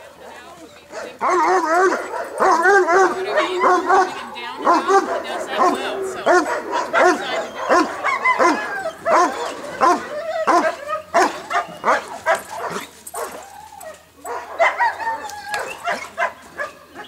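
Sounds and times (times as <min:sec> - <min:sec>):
dog barking rapidly: 0:01.0 - 0:13.3.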